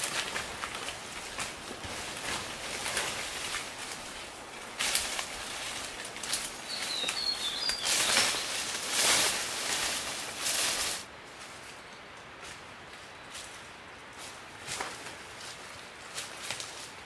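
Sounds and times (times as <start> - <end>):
footsteps through undergrowth: 0.0 - 17.0
leaves rustling: 0.0 - 17.0
bird chirps: 6.6 - 8.6.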